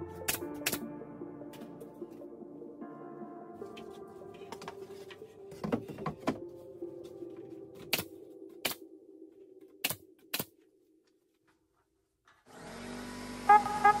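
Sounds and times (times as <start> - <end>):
electronic music with beat: 0.0 - 5.5.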